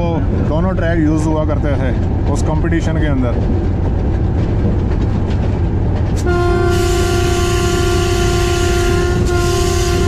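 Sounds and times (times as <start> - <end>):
engine and wheels rumbling: 0.0 - 10.0
locomotive horn: 6.2 - 10.0.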